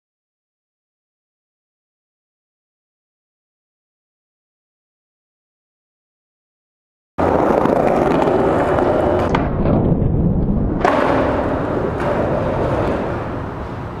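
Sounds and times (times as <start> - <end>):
skateboard clack: 7.2 - 14.0
skateboard wheels rolling on paving: 7.2 - 14.0.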